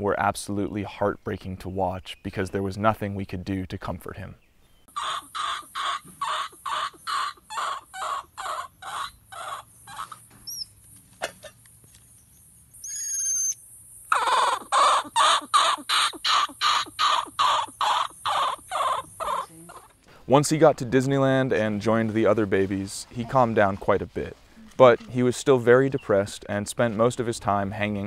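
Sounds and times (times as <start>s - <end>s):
infant monkey crying: 4.9s - 10.6s, 12.8s - 20.0s.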